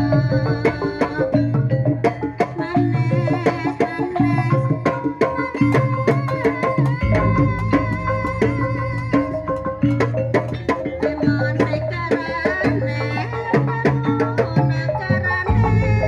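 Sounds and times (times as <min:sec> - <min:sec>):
hand drums beating: 0:00.0 - 0:16.0
deep bass: 0:15.5 - 0:16.0.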